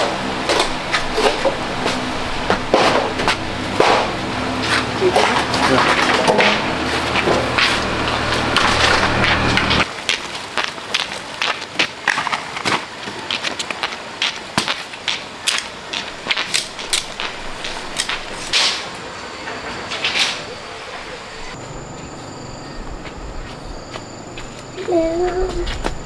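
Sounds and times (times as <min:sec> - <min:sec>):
small engine running: 0:00.0 - 0:09.9.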